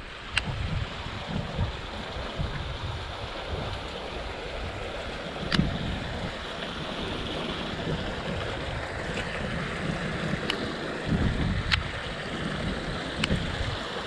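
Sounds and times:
steady outdoor hiss: 0.0 - 14.0
wind buffeting microphone: 0.0 - 14.0.

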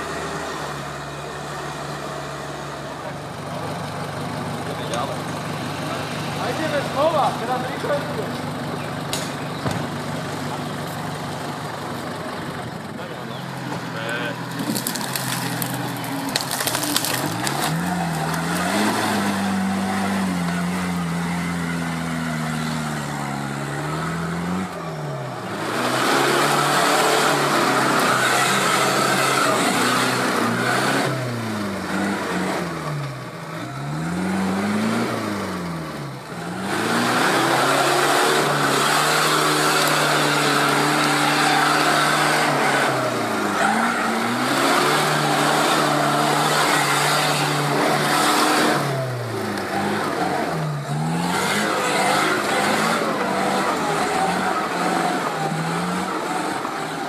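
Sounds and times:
off-road vehicle engine revving: 0.0 - 57.0.

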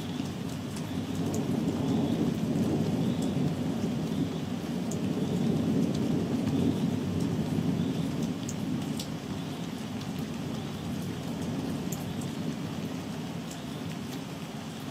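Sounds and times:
close raindrop ticks: 0.0 - 14.9
rain falling: 0.0 - 14.9
rolling thunder: 1.1 - 8.9.

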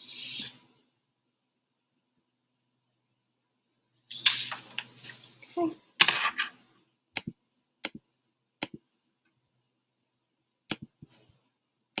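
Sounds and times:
computer mouse clicking: 7.2 - 8.0, 8.6 - 8.8, 10.7 - 11.3.

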